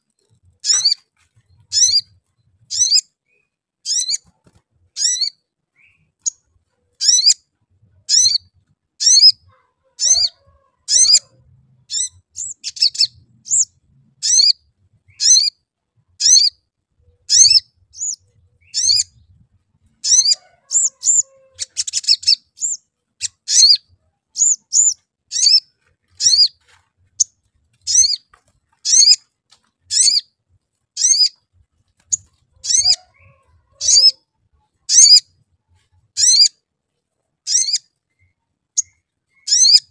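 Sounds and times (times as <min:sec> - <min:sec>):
bird harsh chatter: 0:00.6 - 0:03.0, 0:08.1 - 0:14.5, 0:20.0 - 0:29.3, 0:29.9 - 0:30.2, 0:32.1 - 0:34.3, 0:34.9 - 0:35.3, 0:37.5 - 0:39.9.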